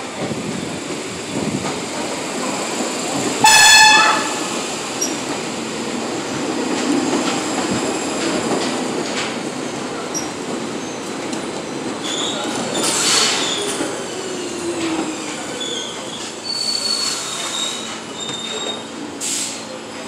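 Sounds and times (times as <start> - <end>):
subway train rumbling over rails: 0.0 - 20.0
high wheel squeals: 12.0 - 19.5.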